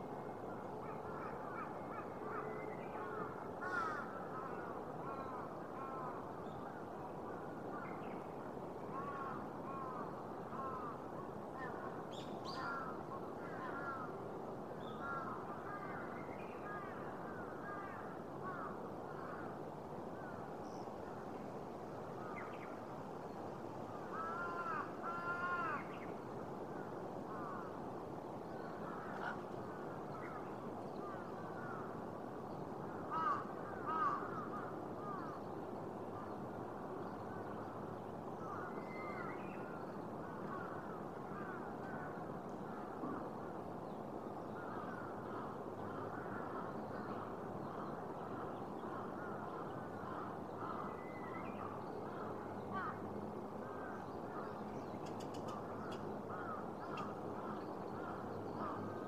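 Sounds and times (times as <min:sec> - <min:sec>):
din of overlapping bird calls: 0:00.0 - 0:59.0
crows cawing: 0:00.8 - 0:06.2, 0:08.9 - 0:11.0, 0:12.6 - 0:14.1, 0:15.0 - 0:19.5, 0:24.1 - 0:26.0, 0:26.7 - 0:27.7, 0:28.8 - 0:30.4, 0:31.0 - 0:32.0, 0:33.0 - 0:35.4, 0:40.3 - 0:43.2, 0:44.5 - 0:51.3, 0:52.0 - 0:53.1, 0:55.1 - 0:59.0.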